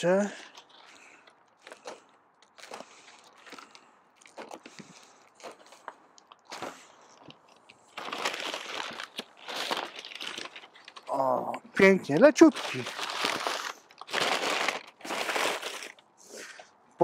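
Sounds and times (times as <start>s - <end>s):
paper crumpling and tearing: 7.9s - 11.3s, 12.3s - 16.0s.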